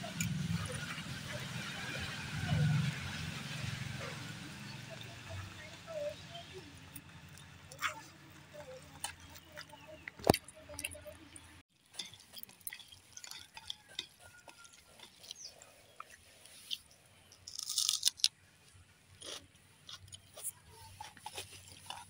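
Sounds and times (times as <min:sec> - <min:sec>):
hands mixing food on steel plates: 0:06.7 - 0:17.4, 0:20.0 - 0:22.0.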